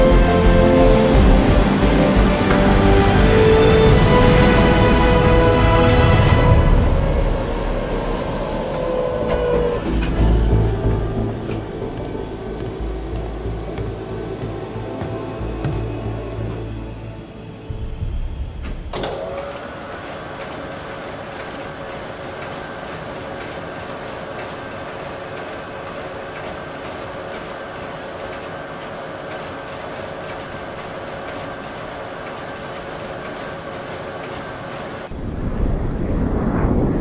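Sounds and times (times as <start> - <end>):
low music: 0.0 - 19.0
machinery humming: 0.0 - 37.0.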